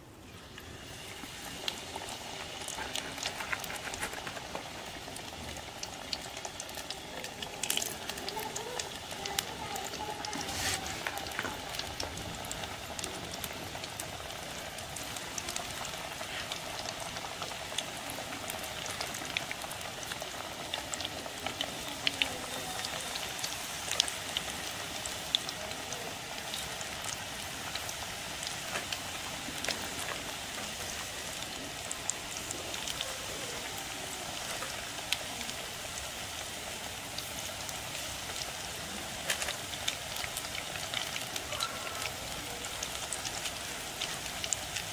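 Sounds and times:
deep-frying sizzle and crackle: 0:00.0 - 0:44.9
oil popping: 0:00.3 - 0:22.2.

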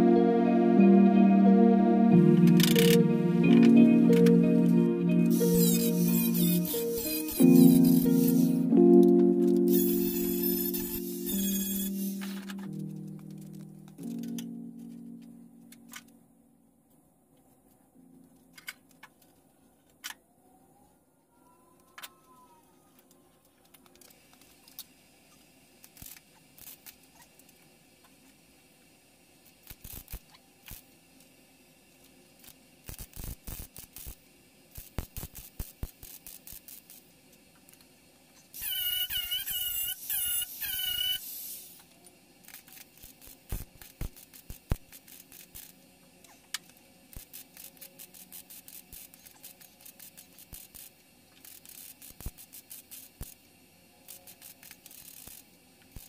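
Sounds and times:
loud wavering squeal: 0:05.3 - 0:08.6, 0:09.7 - 0:12.6.

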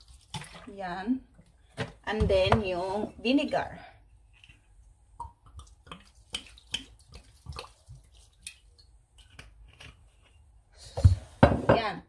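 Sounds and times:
vinegar dripping and splashing: 0:00.0 - 0:01.0, 0:04.3 - 0:10.3.

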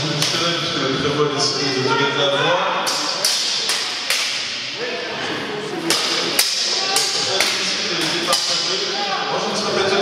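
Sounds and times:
background chatter of voices: 0:00.0 - 0:10.0
swords clashing on armour: 0:02.9 - 0:04.6, 0:05.9 - 0:08.8.

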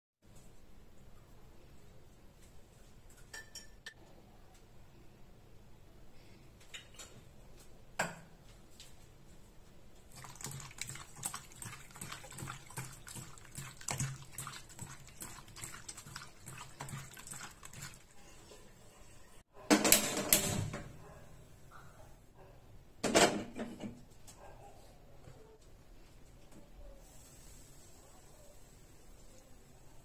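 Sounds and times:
soft wet squelches: 0:10.0 - 0:18.8.

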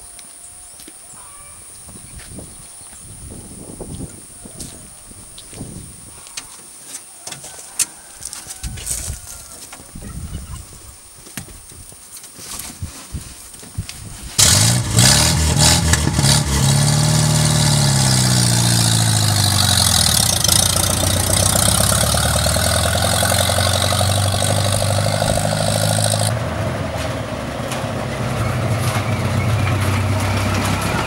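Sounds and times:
jeep engine starting and pulling away: 0:14.4 - 0:31.0.

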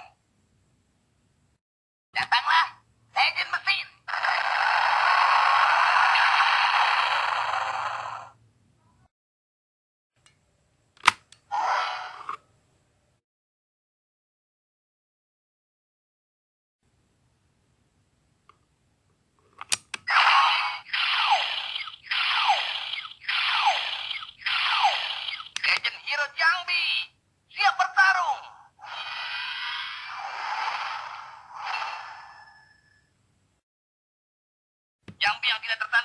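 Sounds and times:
plastic clicks: 0:19.6 - 0:20.1
toy rushing hiss effect: 0:20.7 - 0:25.6, 0:28.8 - 0:32.9.

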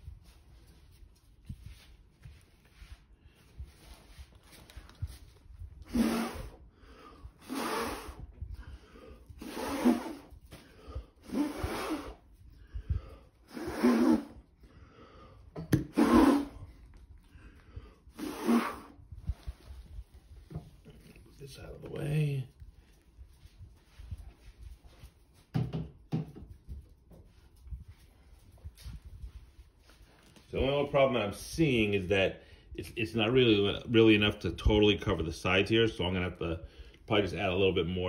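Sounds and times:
person blowing hard: 0:05.8 - 0:12.3, 0:13.0 - 0:14.5, 0:15.7 - 0:16.8, 0:18.1 - 0:19.4
person breathing in: 0:06.2 - 0:09.5, 0:10.6 - 0:14.0, 0:14.6 - 0:15.5.

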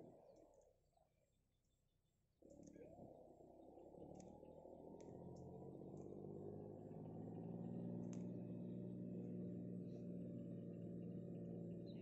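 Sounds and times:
low drone of steady tones: 0:02.8 - 0:12.0
faint high ticks: 0:04.0 - 0:06.2, 0:08.0 - 0:08.4.

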